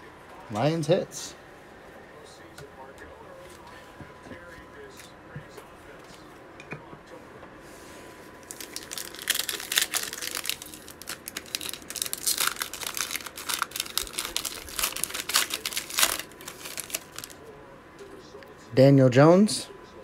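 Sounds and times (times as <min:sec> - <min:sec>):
plastic wrapper tearing and crinkling: 0:08.5 - 0:17.4.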